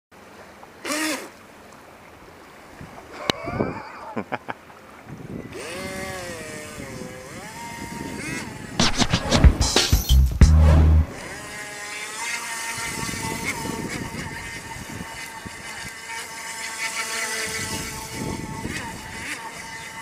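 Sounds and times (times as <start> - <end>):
wind and water noise: 0.1 - 8.8, 11.1 - 20.0
electric motor whining: 5.4 - 8.8, 11.2 - 20.0.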